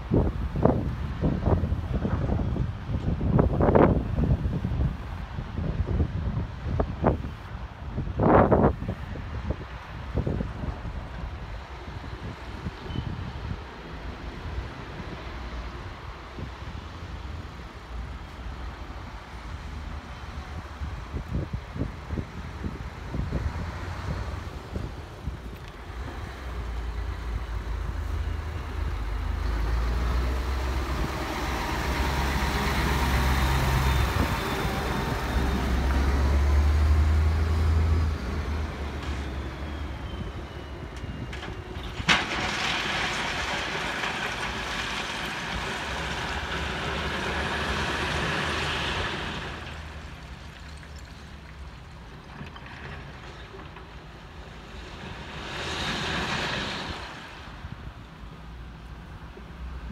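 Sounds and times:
truck engine rumbling: 0:00.0 - 0:59.9
gravel being dumped: 0:41.4 - 0:58.1.

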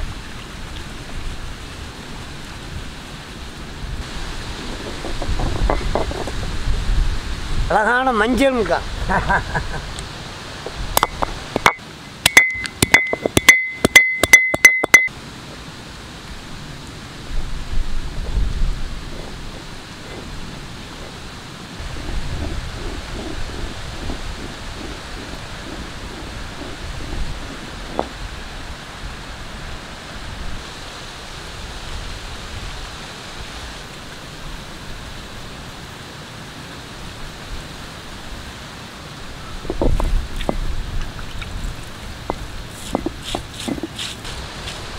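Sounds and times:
steady outdoor hiss: 0:00.0 - 0:44.9
stone roller clinking on stone slab: 0:04.7 - 0:06.4, 0:11.0 - 0:15.1, 0:22.0 - 0:28.2, 0:42.2 - 0:44.2.

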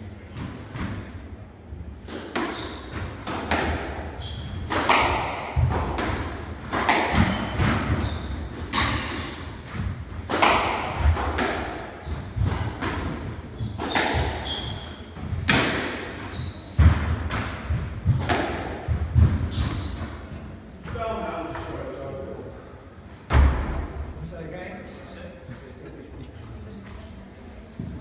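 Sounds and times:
squash ball knocking off walls: 0:02.3 - 0:14.4
shoes squeaking on wooden floor: 0:02.5 - 0:05.0, 0:05.6 - 0:09.8, 0:10.9 - 0:15.4, 0:16.2 - 0:17.1, 0:19.2 - 0:20.5.

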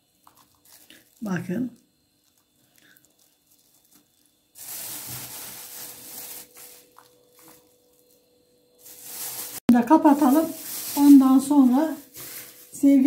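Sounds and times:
hands rustling food: 0:02.2 - 0:08.2, 0:08.8 - 0:13.0.

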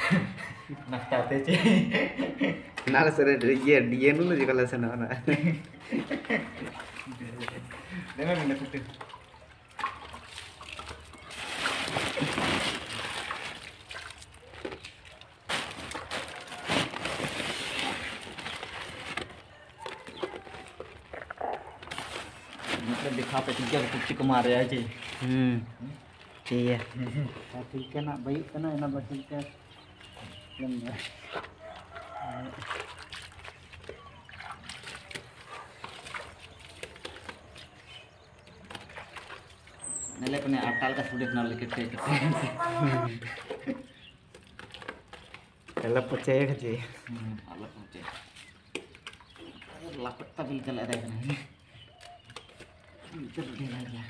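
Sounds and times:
putty squelching in bucket: 0:05.6 - 0:28.0, 0:29.3 - 0:46.3, 0:47.0 - 0:53.9
wet putty splashing and slopping: 0:06.6 - 0:16.1, 0:31.2 - 0:37.9.

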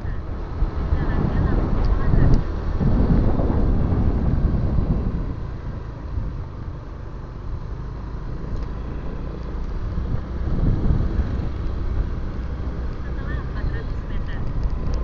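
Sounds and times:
wind on microphone: 0:00.0 - 0:06.6, 0:09.8 - 0:15.0
motorcycle engine and road rumble: 0:00.0 - 0:15.0.

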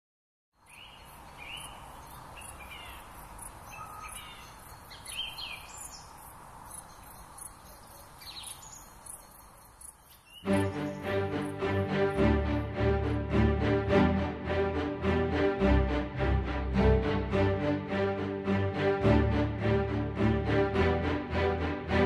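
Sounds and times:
birds chirping: 0:00.6 - 0:12.6.

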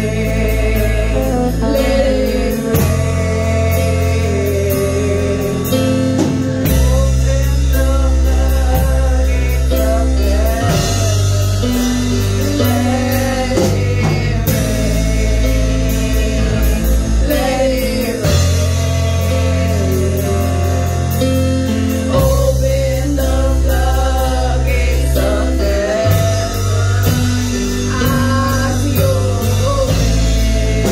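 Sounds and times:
band playing worship music: 0:00.0 - 0:30.9
sustained bass notes: 0:00.0 - 0:30.9
women singing into microphones: 0:08.7 - 0:20.4.

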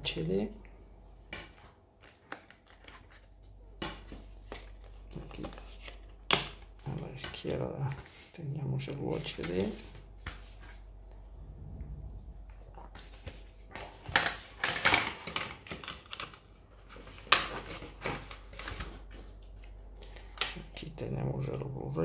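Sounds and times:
disc case rustling: 0:01.3 - 0:08.3.

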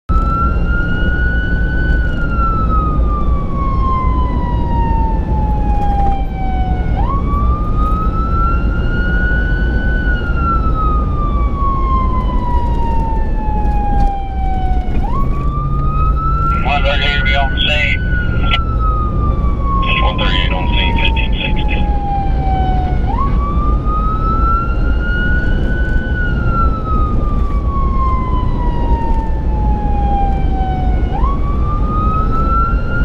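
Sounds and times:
emergency siren wailing: 0:00.1 - 0:33.0
vehicle rumble from cabin: 0:12.6 - 0:18.7, 0:19.6 - 0:22.0.

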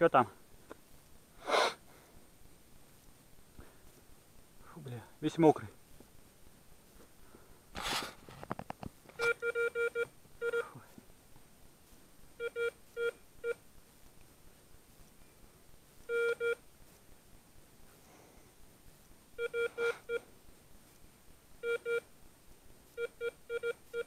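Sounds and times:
short rustle: 0:00.5 - 0:09.4, 0:10.8 - 0:21.6
metal detector beeping: 0:09.2 - 0:10.7, 0:16.1 - 0:16.6, 0:19.4 - 0:20.2, 0:21.6 - 0:22.0.

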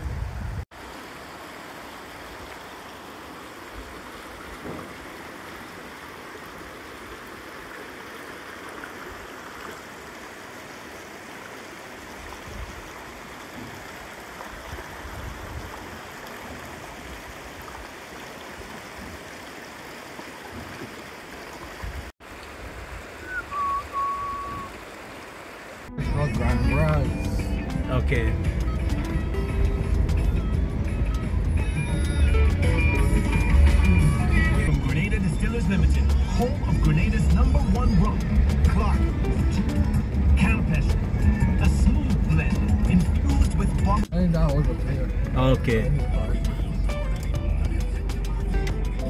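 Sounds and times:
stream trickling over stones: 0:00.7 - 0:49.0
low bumps: 0:25.9 - 0:49.0.

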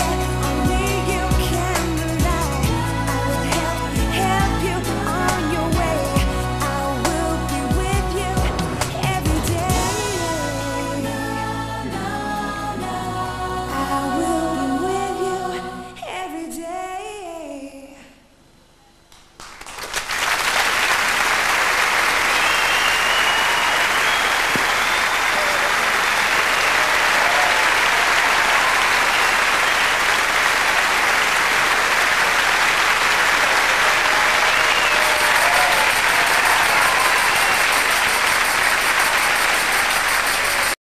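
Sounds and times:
large audience applauding: 0:19.2 - 0:40.8.

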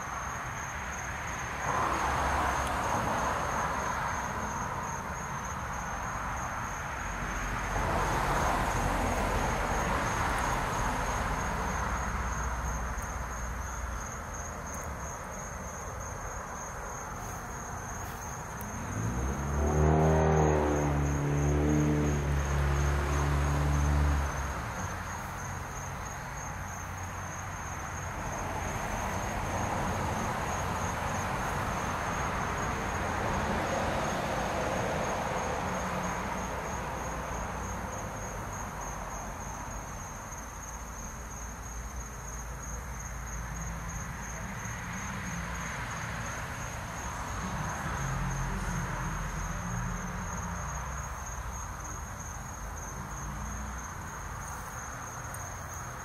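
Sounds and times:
crickets chirping: 0:00.0 - 0:56.0
low engine sound: 0:18.4 - 0:24.8.

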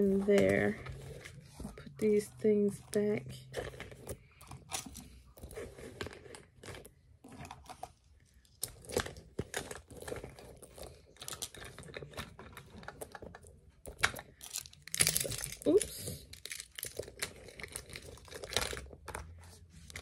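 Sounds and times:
plastic items clicking: 0:08.5 - 0:19.3.

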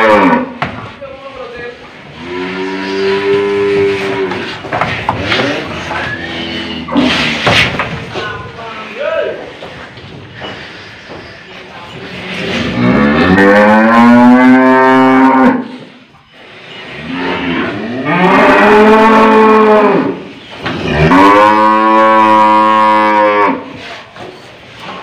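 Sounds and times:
cow bellowing: 0:00.0 - 0:00.6, 0:12.7 - 0:15.7, 0:16.8 - 0:20.2, 0:20.8 - 0:23.7.

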